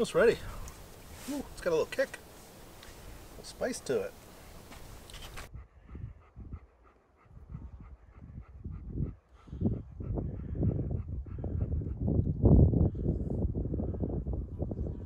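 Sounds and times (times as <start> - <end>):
dog panting: 4.8 - 12.2.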